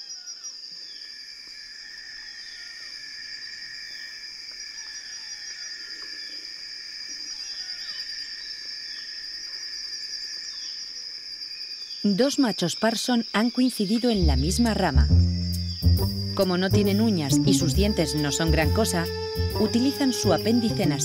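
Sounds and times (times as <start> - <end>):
high-pitched insect trill: 0.0 - 21.0
low insect trilling: 10.4 - 21.0.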